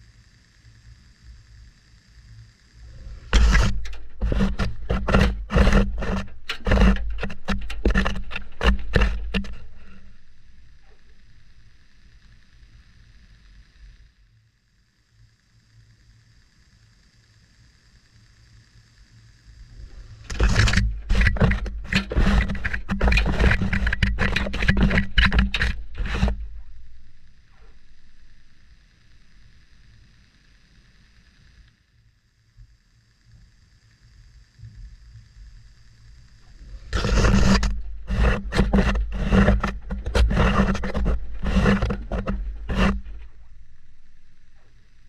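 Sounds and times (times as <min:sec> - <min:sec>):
low hum: 0:00.0 - 0:45.0
clothes rubbing in washing machine: 0:03.4 - 0:10.2, 0:20.3 - 0:27.8, 0:36.9 - 0:43.6.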